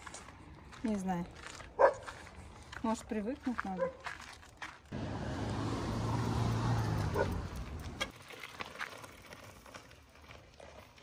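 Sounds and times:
road noise: 0:04.6 - 0:08.3
vehicle engine hum: 0:04.9 - 0:08.1.

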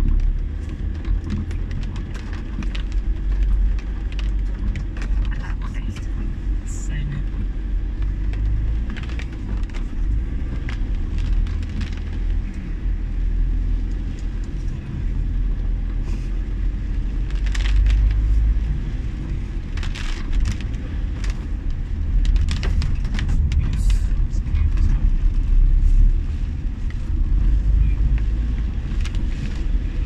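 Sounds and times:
engine and tyres on wet road: 0:00.0 - 0:30.0.

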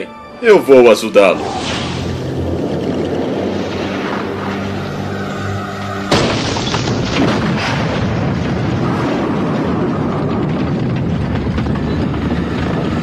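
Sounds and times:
loud rushing blast noise: 0:01.3 - 0:11.7
sudden boom: 0:01.4 - 0:12.3.

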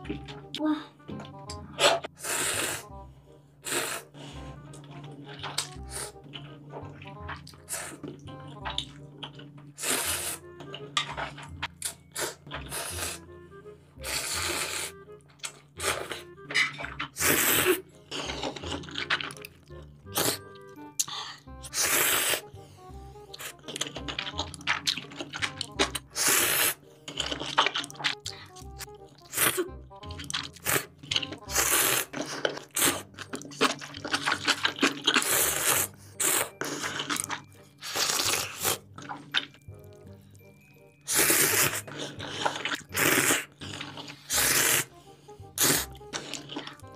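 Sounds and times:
background music: 0:00.0 - 0:46.9
slurping noodles: 0:01.8 - 0:03.0, 0:03.6 - 0:13.3, 0:14.0 - 0:39.6, 0:41.1 - 0:46.9
chewing sounds: 0:03.6 - 0:13.2, 0:14.0 - 0:22.6, 0:23.2 - 0:46.9.

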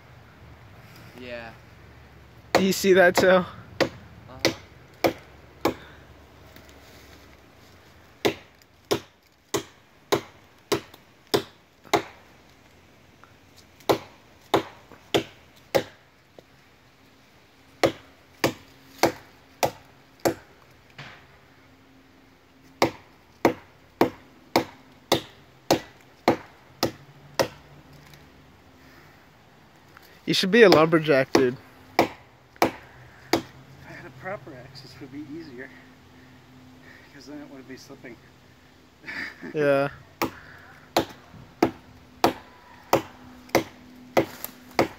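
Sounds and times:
axe chopping tree trunk: 0:02.5 - 0:05.9, 0:08.2 - 0:12.2, 0:13.8 - 0:16.0, 0:17.8 - 0:21.2, 0:22.8 - 0:27.6, 0:30.7 - 0:33.6, 0:40.2 - 0:44.9.

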